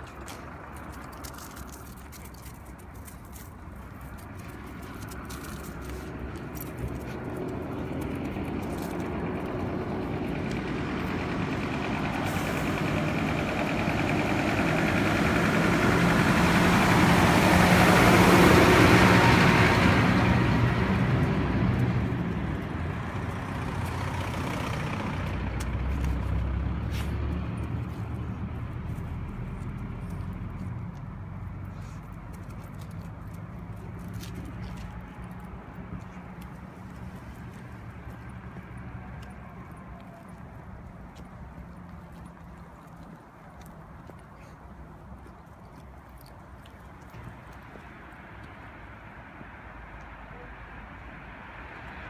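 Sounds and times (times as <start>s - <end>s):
truck driving past: 4.5s - 40.1s.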